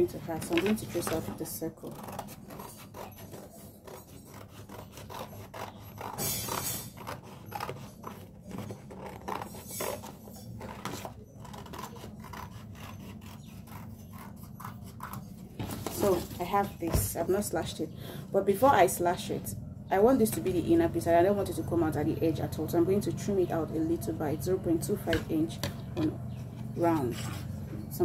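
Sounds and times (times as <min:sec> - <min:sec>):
scissors snipping paper: 0:00.0 - 0:15.3
paper rustling: 0:15.0 - 0:16.6.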